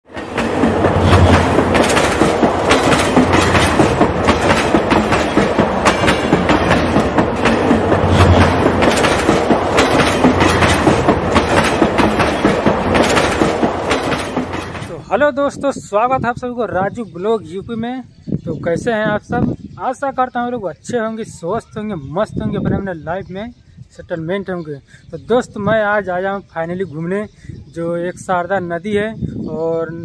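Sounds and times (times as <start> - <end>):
train wheels clattering: 0.1 - 15.0
train rumble: 0.1 - 15.2.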